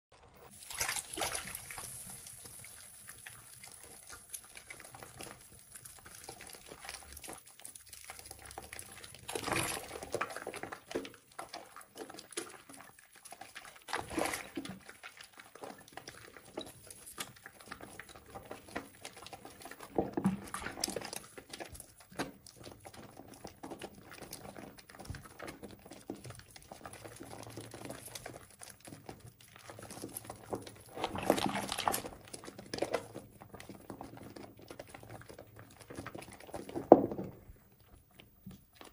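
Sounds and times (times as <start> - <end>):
wet soap squelching in hands: 0.4 - 38.9.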